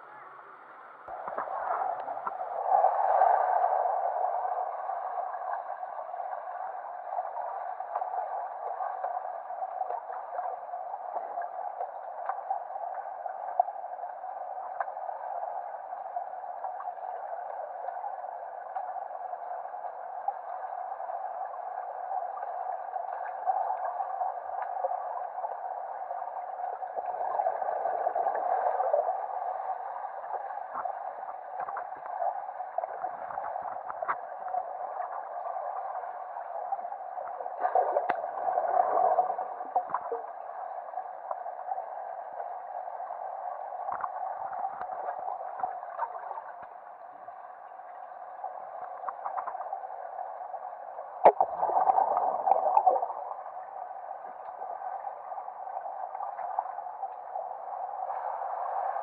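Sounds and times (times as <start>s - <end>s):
faint clicks: 1.1s - 2.4s, 37.2s - 38.4s, 43.9s - 46.8s.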